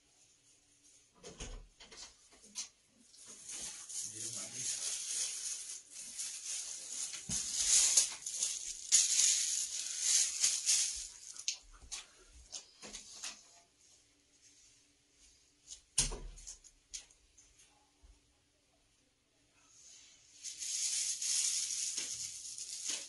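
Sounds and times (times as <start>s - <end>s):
scratchy rustling hiss: 3.1s - 12.0s, 19.9s - 23.0s.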